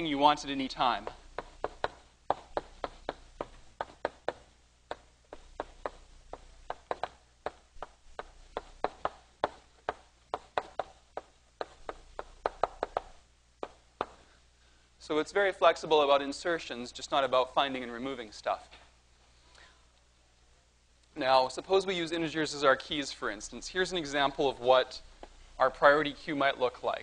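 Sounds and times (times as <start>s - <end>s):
chalk tapping on blackboard: 0.6s - 14.2s.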